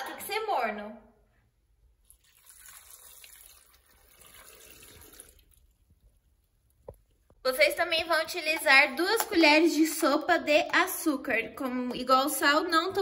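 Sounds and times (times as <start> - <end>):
milk pouring into blender jar: 2.0 - 6.2.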